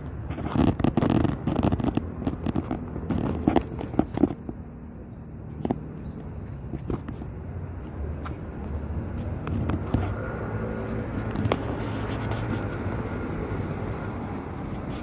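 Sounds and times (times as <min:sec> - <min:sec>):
exhaust popping and crackling: 0:00.0 - 0:04.8, 0:05.4 - 0:15.0.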